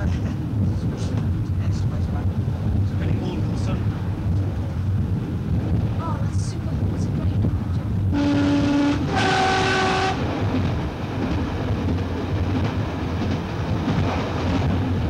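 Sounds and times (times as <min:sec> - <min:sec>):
train rumbling on rails: 0:00.0 - 0:15.0
two-tone train horn: 0:08.1 - 0:10.3.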